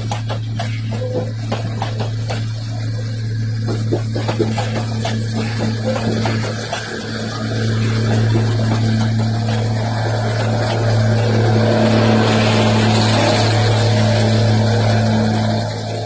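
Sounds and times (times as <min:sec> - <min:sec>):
passing train: 0:00.0 - 0:16.0
steady low hum: 0:00.0 - 0:16.0
train wheel rumble: 0:00.0 - 0:16.0.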